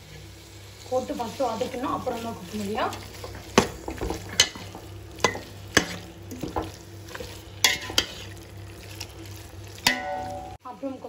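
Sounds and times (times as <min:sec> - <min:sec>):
light sizzle: 0:00.0 - 0:11.0
spoon knocking against pan: 0:03.2 - 0:06.8, 0:09.8 - 0:10.6.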